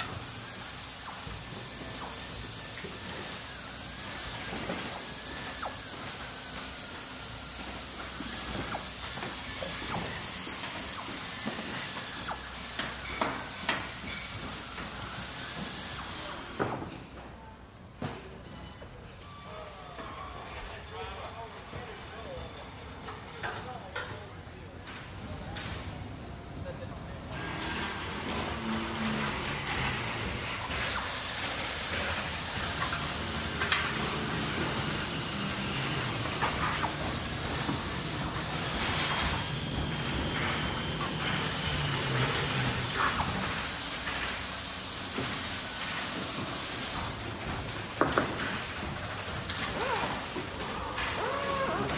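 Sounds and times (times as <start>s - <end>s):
steady machinery hiss: 0.0s - 23.4s, 24.5s - 51.9s.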